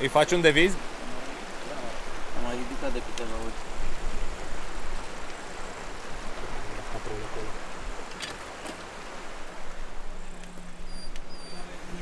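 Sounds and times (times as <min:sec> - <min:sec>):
mountain river rushing: 0:00.0 - 0:12.0.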